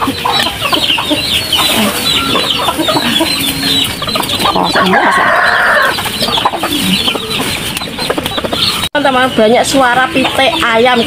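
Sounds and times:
chickens clucking: 0:00.0 - 0:11.0
rooster crowing: 0:01.8 - 0:06.0.

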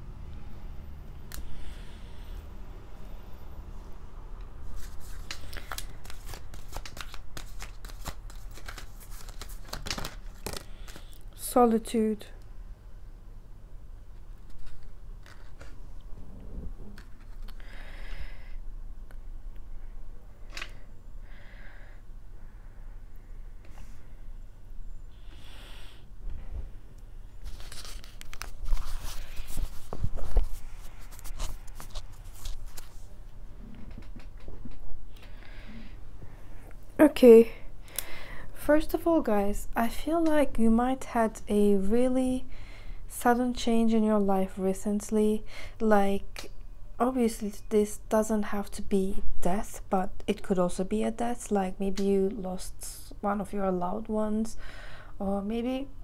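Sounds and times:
cards being shuffled: 0:04.6 - 0:11.2, 0:14.3 - 0:15.8, 0:16.9 - 0:17.6, 0:27.4 - 0:33.1
rustling and crinkling: 0:04.6 - 0:11.2, 0:14.1 - 0:17.6, 0:27.3 - 0:34.9.

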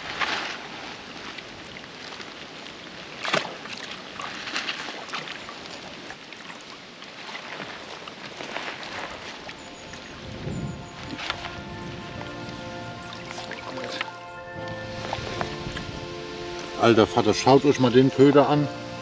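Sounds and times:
water splashing and lapping: 0:00.0 - 0:17.1
sharp water splash: 0:03.0 - 0:09.6.

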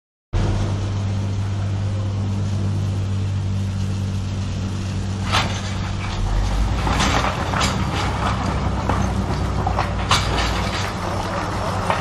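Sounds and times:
steady low hum: 0:00.4 - 0:12.0.

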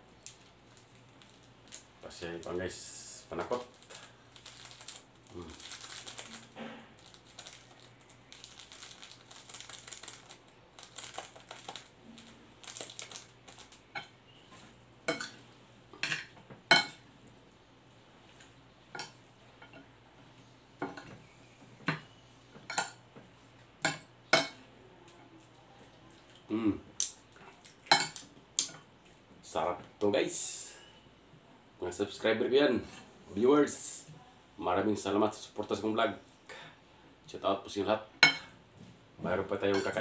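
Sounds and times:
sachets crackling: 0:00.2 - 0:02.7, 0:03.3 - 0:13.9.

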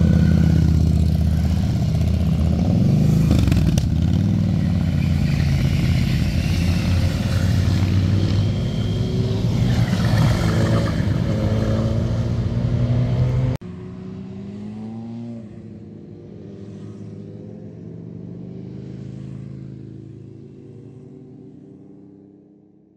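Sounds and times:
distant engine: 0:00.0 - 0:15.2
motorcycle engines revving: 0:00.0 - 0:22.6.

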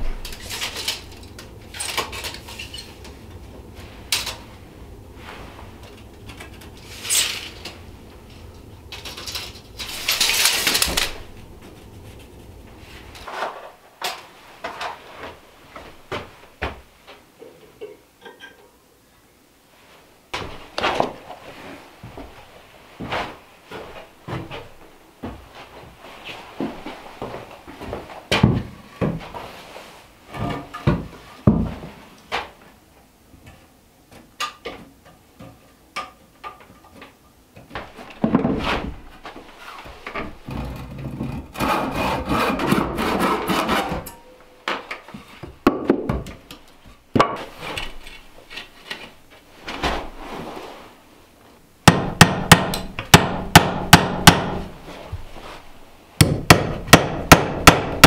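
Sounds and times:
handsaw cutting wood: 0:41.5 - 0:44.1
hammer driving nail into wood: 0:51.9 - 0:54.6, 0:56.2 - 0:58.0.

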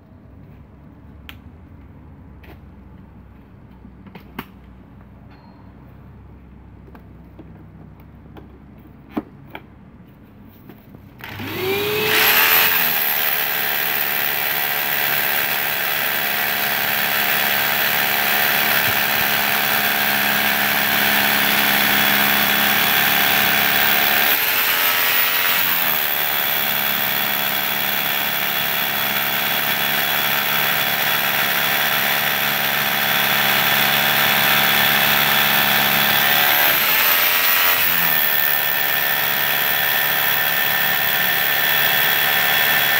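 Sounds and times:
dust extractor running: 0:11.2 - 0:42.9
rotary hammer drilling concrete: 0:11.2 - 0:42.9.

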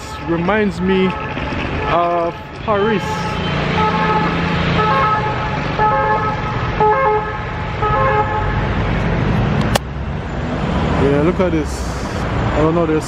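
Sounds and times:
two-tone ambulance siren: 0:00.0 - 0:08.8
street traffic hum: 0:00.0 - 0:13.0.

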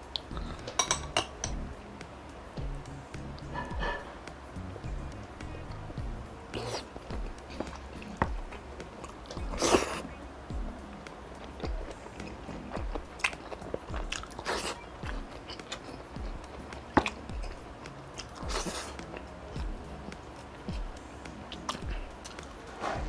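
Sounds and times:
close chewing with mouth smacks: 0:06.5 - 0:10.2, 0:11.4 - 0:22.5.

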